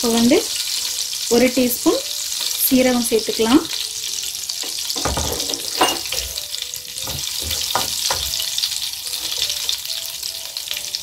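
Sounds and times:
seeds sizzling in oil: 0.0 - 11.0
wooden spatula knocking on pan: 4.6 - 6.4, 7.0 - 8.5.

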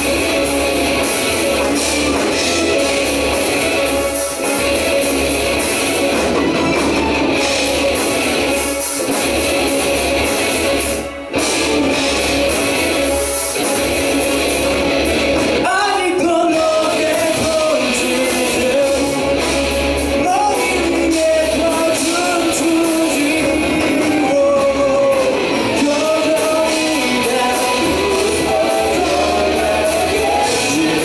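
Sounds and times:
live rock band playing: 0.0 - 31.0
man singing lead vocal: 15.6 - 19.5, 20.2 - 31.0.

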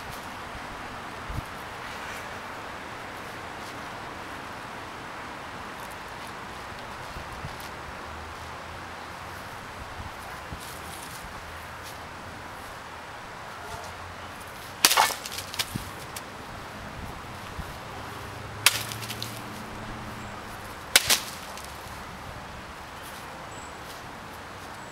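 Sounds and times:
sword slicing through mat: 14.8 - 15.8, 18.6 - 19.4, 21.0 - 21.7.

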